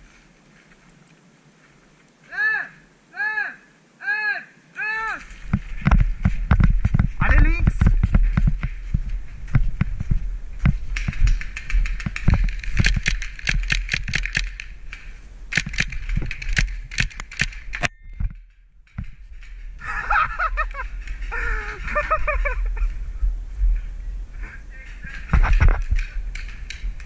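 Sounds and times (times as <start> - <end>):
low wind rumble: 4.6 - 27.0
paintball markers firing: 10.9 - 18.4.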